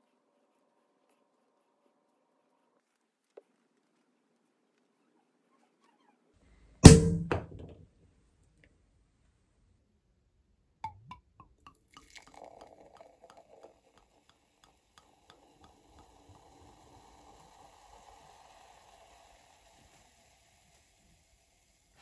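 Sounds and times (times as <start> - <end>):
cork popping from bottle: 10.8 - 19.8
drips: 10.8 - 21.3
wine pouring and fizzing: 10.8 - 22.0.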